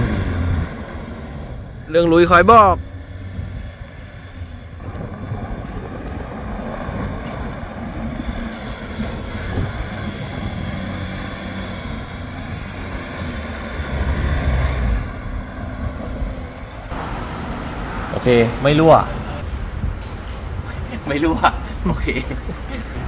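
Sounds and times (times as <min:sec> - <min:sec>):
car driving fast over dirt: 0:00.0 - 0:17.2.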